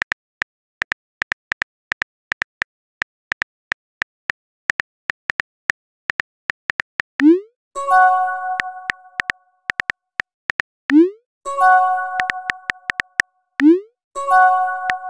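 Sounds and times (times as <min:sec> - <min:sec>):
keyboard click sound effects: 0:06.1 - 0:09.9, 0:10.5 - 0:15.0
bell-like chime: 0:07.8 - 0:09.2, 0:11.5 - 0:12.9, 0:14.2 - 0:15.0.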